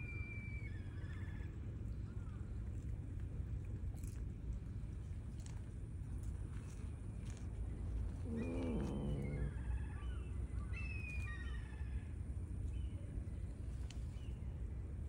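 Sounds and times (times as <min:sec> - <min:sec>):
steady low rumble: 0:01.1 - 0:10.8.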